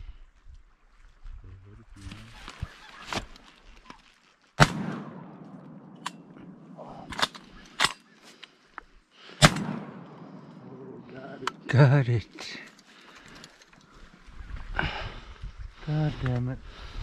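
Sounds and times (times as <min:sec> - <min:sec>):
shotgun shots with echo: 0:04.6 - 0:06.3, 0:09.4 - 0:10.4.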